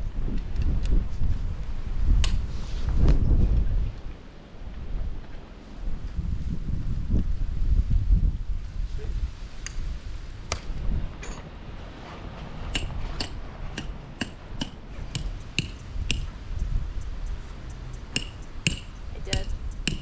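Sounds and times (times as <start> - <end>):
wind rumble on microphone: 0.0 - 20.0
hammer striking metal tent pegs: 12.7 - 16.4, 18.1 - 20.0.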